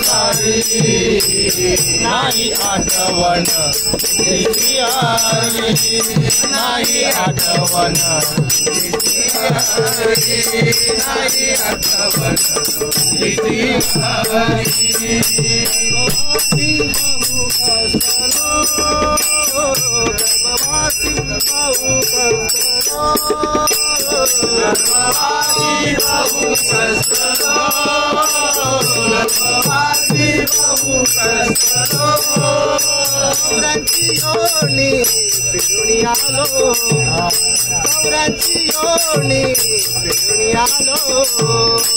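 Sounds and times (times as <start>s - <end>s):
hand cymbals ringing: 0.0s - 41.9s
men singing: 0.0s - 41.9s.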